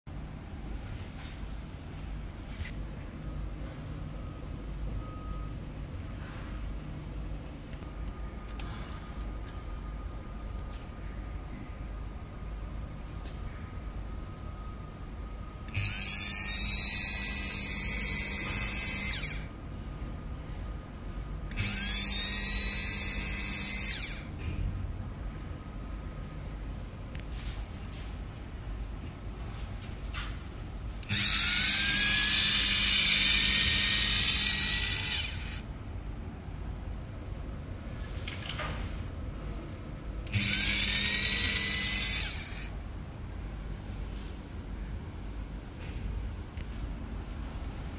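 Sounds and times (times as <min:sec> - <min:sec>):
electric motor whining: 0:15.7 - 0:19.5, 0:21.5 - 0:24.3, 0:31.0 - 0:35.6, 0:40.3 - 0:42.7.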